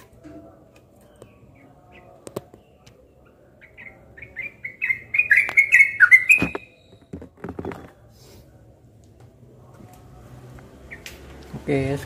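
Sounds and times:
bird chirping: 1.0 - 7.8, 10.8 - 11.4.

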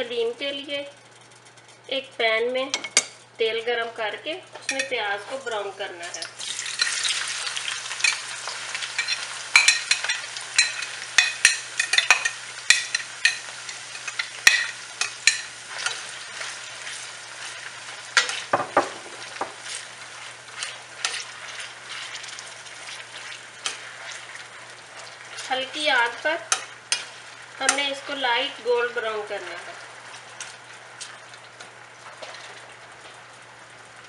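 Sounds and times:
onions sizzling in oil: 4.6 - 34.0
spoon scraping a pan: 6.6 - 28.2.

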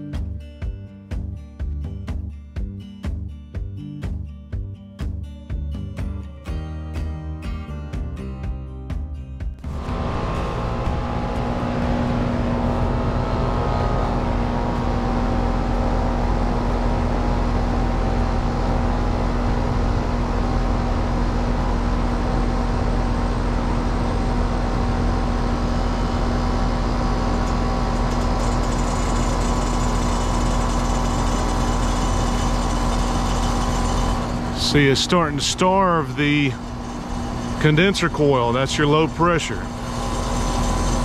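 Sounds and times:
heat pump compressor hum: 9.6 - 41.0.

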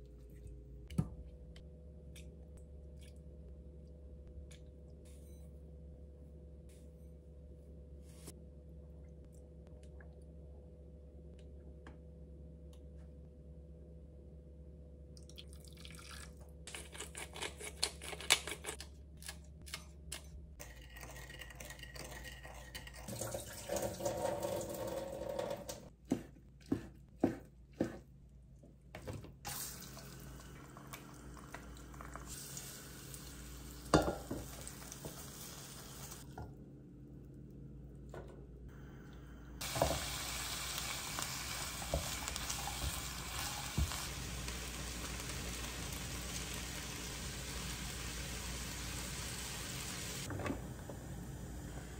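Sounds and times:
onions sizzling in frying pan: 32.2 - 36.2, 39.6 - 50.3.

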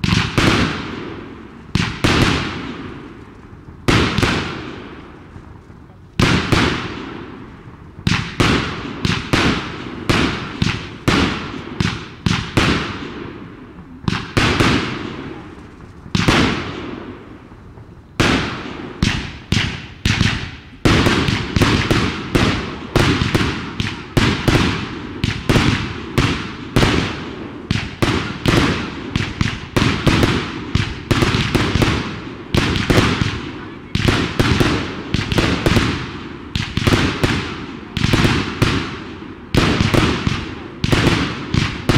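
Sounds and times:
fireworks bursting with crackling: 0.0 - 41.9.

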